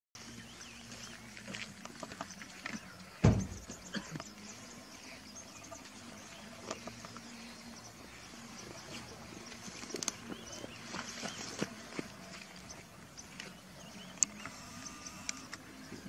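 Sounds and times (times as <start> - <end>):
faint steady hum: 0.2 - 16.0
loud dull thump: 3.2 - 3.7
small clicks: 14.1 - 15.7.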